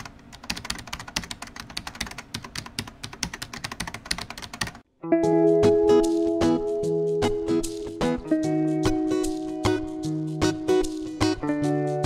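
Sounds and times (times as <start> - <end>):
rapid keyboard typing: 0.0 - 4.9
music: 5.0 - 12.0.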